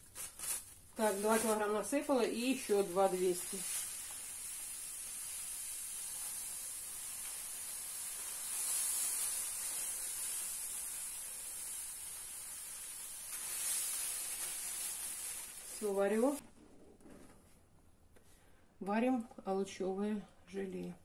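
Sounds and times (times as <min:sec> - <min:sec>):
sugar pouring into a pan: 0:00.1 - 0:16.4.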